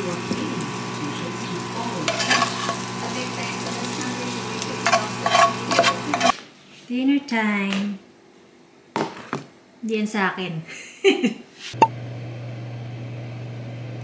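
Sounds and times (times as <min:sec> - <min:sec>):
food sizzling in a frying pan: 0:00.0 - 0:06.4.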